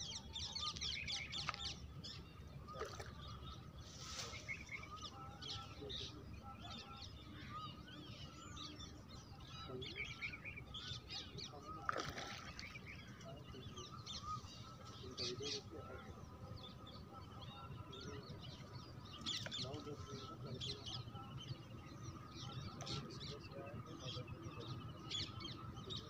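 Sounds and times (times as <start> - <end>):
birds chirping and calling: 0.0 - 26.0
splash in water: 2.7 - 3.2, 11.8 - 12.8.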